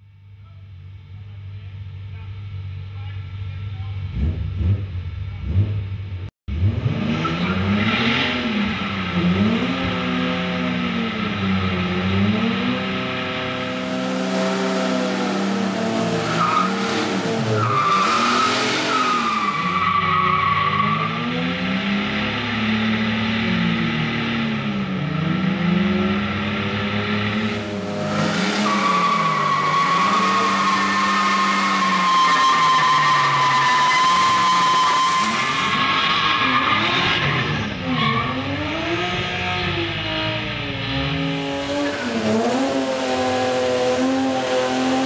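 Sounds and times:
car engines revving: 2.4s - 45.0s
tyres squealing: 28.6s - 38.5s.

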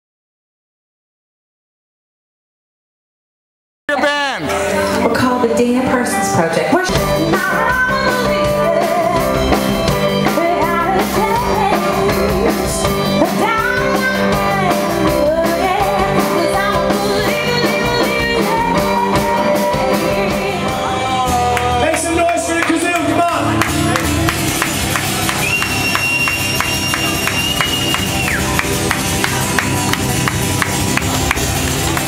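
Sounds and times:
woman singing lead: 3.9s - 21.8s
live rock band playing: 3.9s - 32.0s.

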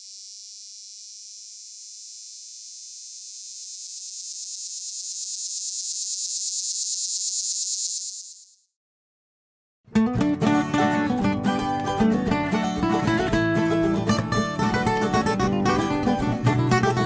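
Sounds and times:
cicada buzzing: 0.0s - 8.8s.

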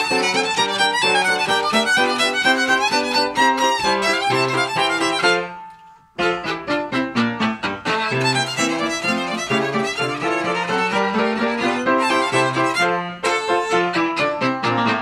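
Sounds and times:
fiddle playing quick melody: 0.0s - 15.0s
piano chords: 0.0s - 15.0s.

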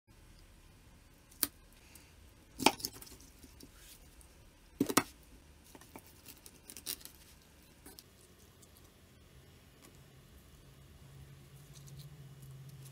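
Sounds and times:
handling noises and clicks: 2.6s - 9.0s.

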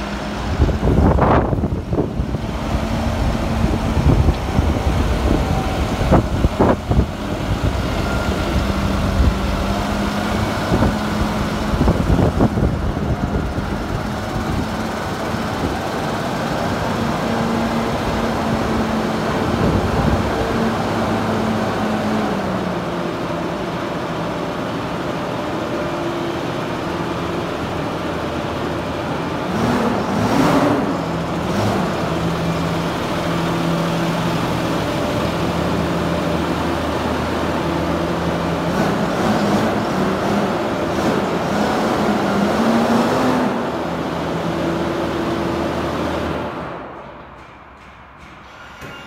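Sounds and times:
tractor diesel engine running: 0.0s - 47.4s.

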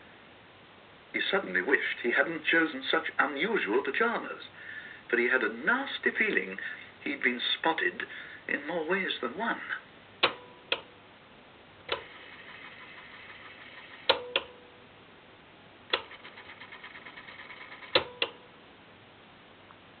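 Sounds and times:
cassette player buttons clunking: 10.2s - 11.0s.

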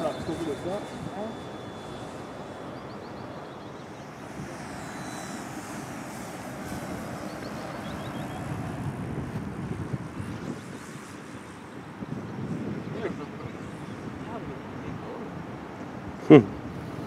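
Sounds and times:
bird chirps: 0.0s - 4.2s, 7.2s - 8.6s
model plane whine: 0.0s - 17.0s
wind rumble on microphone: 0.0s - 17.0s.

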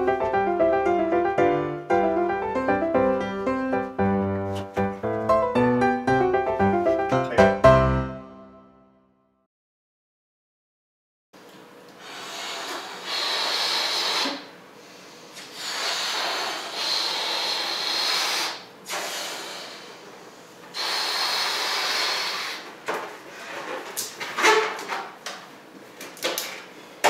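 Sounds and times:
blowing up balloons: 12.0s - 14.6s, 15.4s - 20.0s, 20.7s - 22.8s.

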